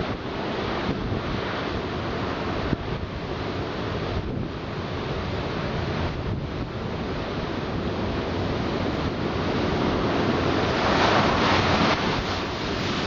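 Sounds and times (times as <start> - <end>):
wind buffeting microphone: 0.0 - 13.0
heavy breaking seas: 8.6 - 13.0.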